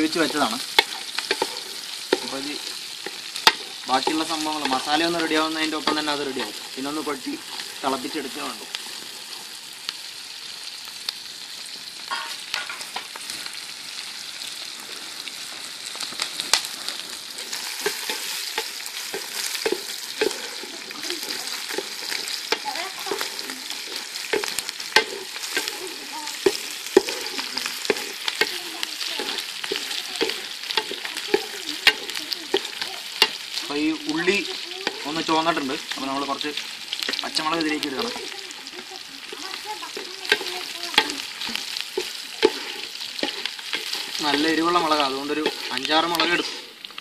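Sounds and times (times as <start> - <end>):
shallots sizzling in oil: 0.0 - 47.0
wooden spatula scraping a pot: 0.1 - 9.5, 17.4 - 33.4, 37.0 - 46.8.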